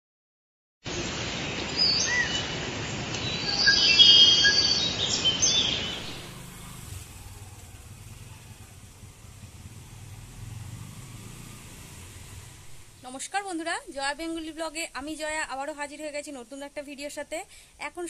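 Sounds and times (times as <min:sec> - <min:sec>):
birds chirping and whistling: 0:01.8 - 0:02.5, 0:03.2 - 0:06.3.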